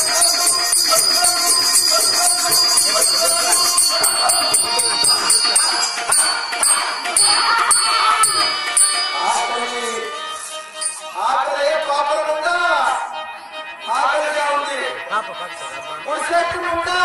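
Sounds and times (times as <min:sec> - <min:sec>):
jingling bells: 0:00.0 - 0:11.3
harmonium-like held tones: 0:00.0 - 0:17.0.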